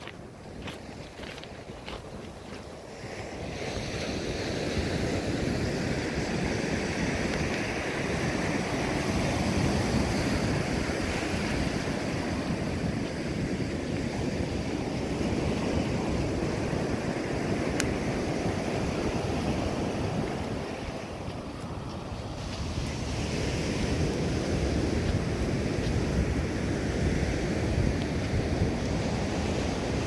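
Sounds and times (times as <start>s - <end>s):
wind on the microphone: 0.0s - 30.0s
ocean surf breaking: 0.6s - 30.0s.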